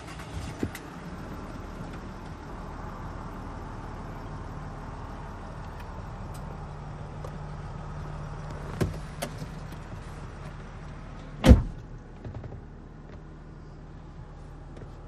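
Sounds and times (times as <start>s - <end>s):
diesel engine idling: 0.0s - 15.0s
loud thump: 11.4s - 12.5s.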